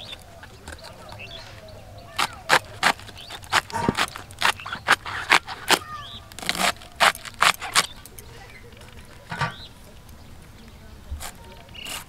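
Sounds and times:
cabbage crunching being sliced: 2.0 - 8.2, 11.2 - 12.0.

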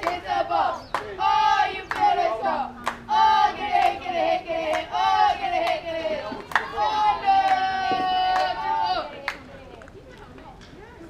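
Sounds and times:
sharp claps: 0.0 - 0.3, 0.9 - 1.2, 1.9 - 2.2, 2.8 - 3.1, 4.6 - 4.9, 5.6 - 6.8, 7.4 - 10.8
girls chanting a cheer: 0.0 - 9.4.

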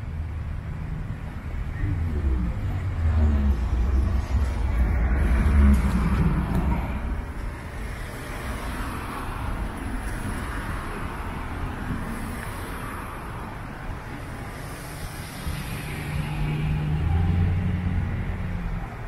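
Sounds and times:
low engine hum: 0.0 - 12.2
street traffic noise: 0.0 - 19.0.

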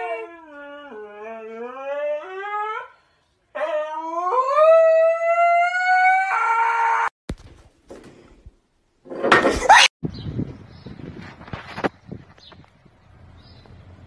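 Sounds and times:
husky howling: 3.6 - 7.1.

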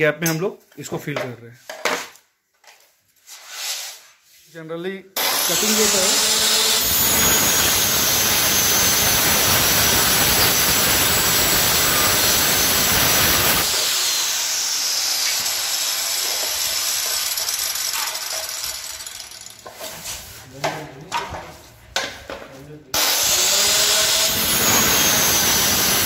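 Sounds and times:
circular saw cutting laminate: 5.2 - 19.6, 23.0 - 26.0
saw blade winding down: 5.2 - 19.6, 23.0 - 26.0.

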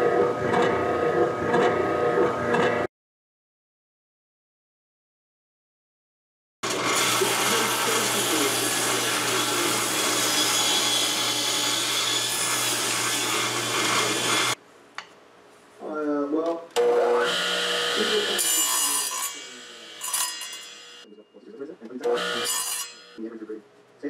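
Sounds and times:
radial arm saw whine: 6.6 - 14.6, 16.8 - 23.2
table saw ripping wood: 6.6 - 14.6, 16.8 - 21.0, 22.0 - 23.2.

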